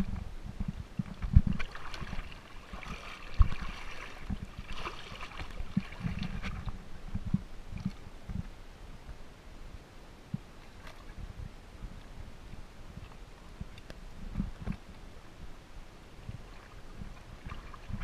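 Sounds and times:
seawater sloshing and splashing: 1.1s - 6.8s, 16.2s - 18.0s.

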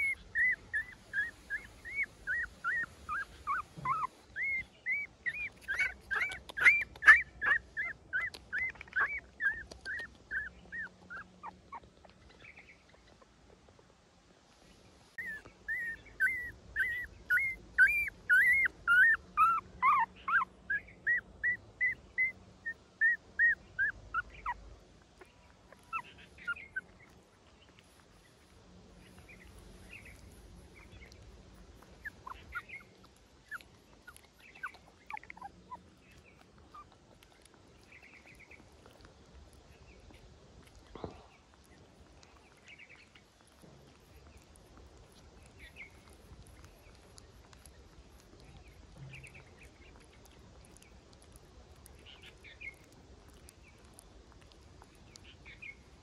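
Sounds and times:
puppy whimpering: 0.0s - 12.4s, 15.2s - 28.0s, 29.4s - 40.9s.

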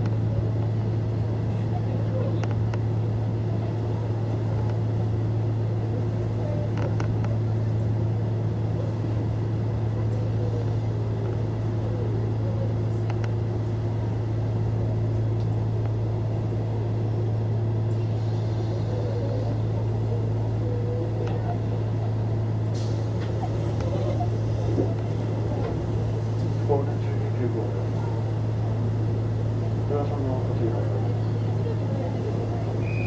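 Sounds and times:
train interior hum: 0.0s - 33.0s.

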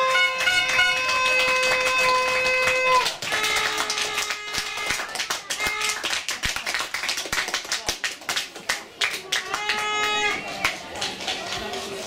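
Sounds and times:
horn blast: 0.0s - 4.9s
claps and taps: 0.2s - 11.8s.

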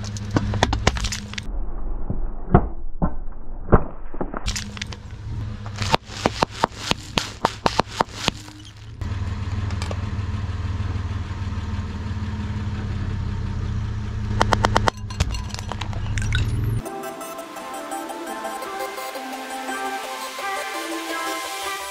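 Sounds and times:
light fitting cracking under tyre: 4.4s - 9.0s
car engine running at a crawl: 4.6s - 14.9s
can crumpling with sharp cracks: 5.7s - 8.9s.

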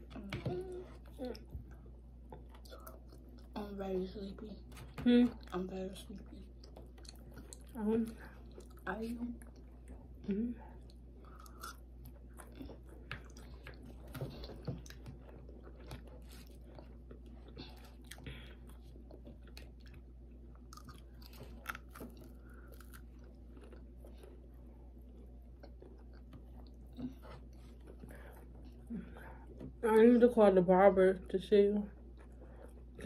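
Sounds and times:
low steady hum: 0.0s - 33.0s
crunchy chewing: 10.8s - 29.6s.

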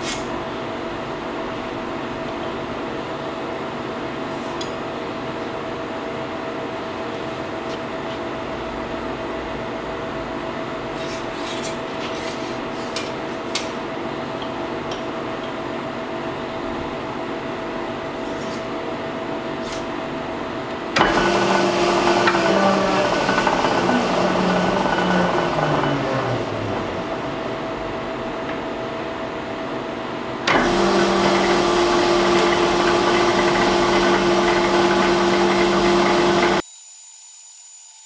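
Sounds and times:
rolling machine humming: 20.0s - 29.5s, 30.1s - 36.6s.

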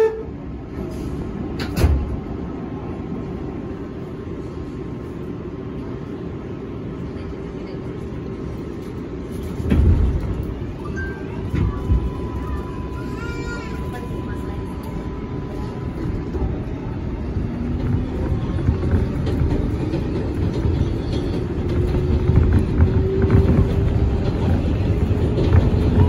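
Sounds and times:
subway car low rumble: 0.0s - 26.0s.

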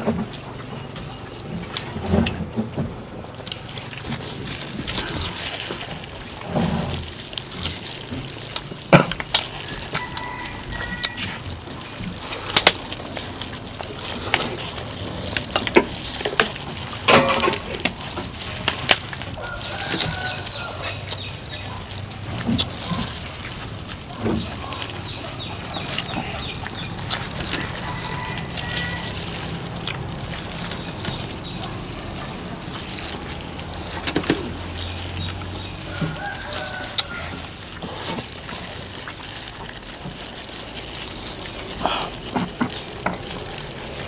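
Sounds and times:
chickens clucking: 0.0s - 44.0s
people eating crunchily: 0.0s - 44.0s.

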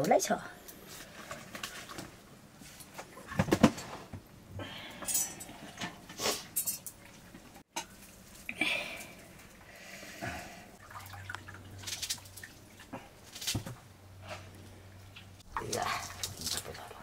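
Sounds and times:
metal pots and utensils clinking: 4.9s - 7.0s.

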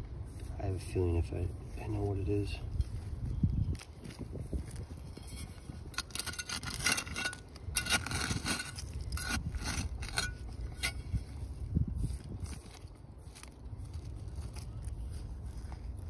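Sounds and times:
digging tool scraping soil: 5.0s - 11.5s.

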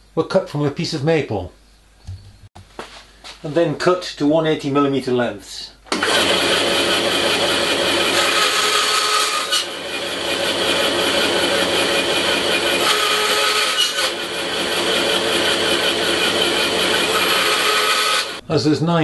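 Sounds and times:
bandsaw running: 5.9s - 18.4s
saw blade cutting wood: 5.9s - 18.4s.

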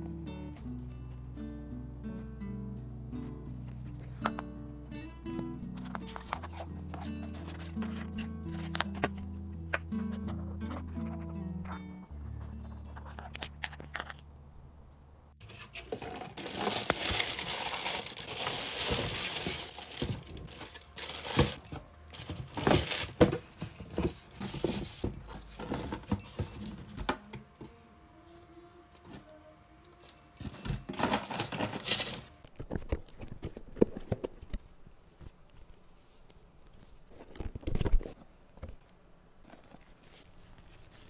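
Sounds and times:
packaging rustling and crinkling: 5.7s - 9.3s, 15.4s - 26.7s.

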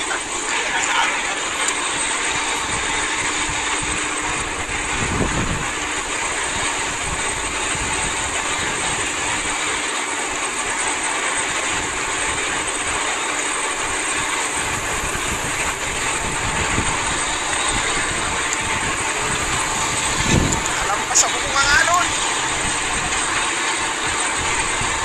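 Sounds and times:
wind buffeting microphone: 0.0s - 9.8s, 11.4s - 25.0s
boat engine drone: 0.0s - 25.0s.

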